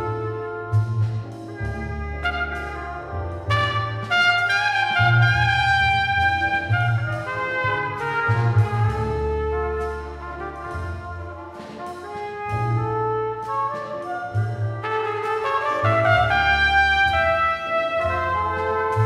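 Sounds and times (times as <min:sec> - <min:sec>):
double bass notes: 0:00.0 - 0:19.0
drums: 0:00.0 - 0:19.0
trumpet melody: 0:00.0 - 0:19.0.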